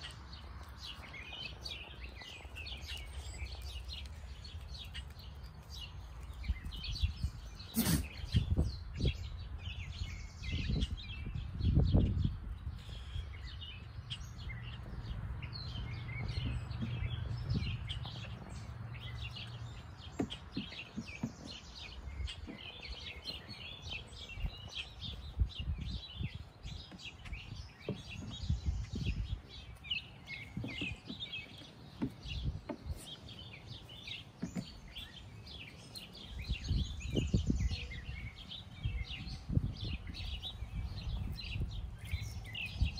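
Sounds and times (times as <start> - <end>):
small birds chirping: 0.0 - 42.9
low rumbling: 0.4 - 20.1.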